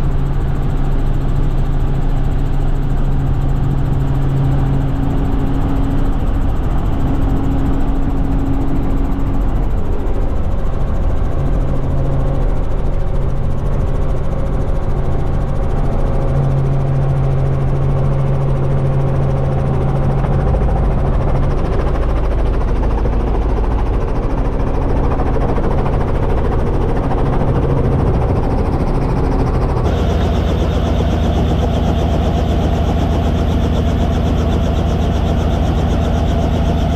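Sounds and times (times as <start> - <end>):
helicopter engine and rotor drone: 0.0 - 36.9.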